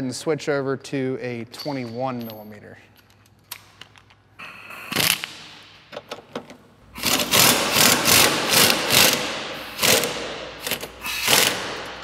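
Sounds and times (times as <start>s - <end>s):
impact wrench rattling: 4.9s - 12.0s.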